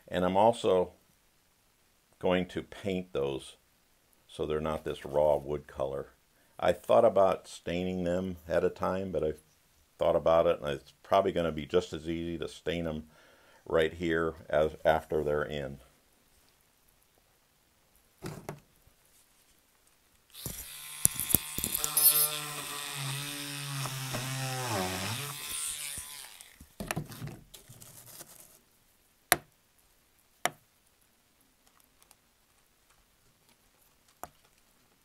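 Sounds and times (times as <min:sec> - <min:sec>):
small electric drill running: 0:20.3 - 0:26.7.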